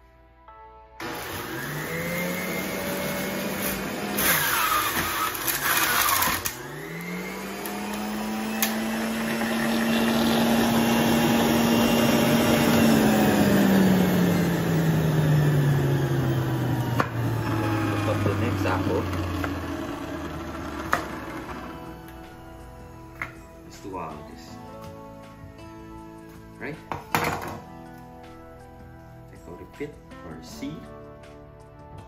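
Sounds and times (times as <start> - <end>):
juicer motor whining: 1.0 - 22.6
fruit grinding rattle: 3.4 - 11.3.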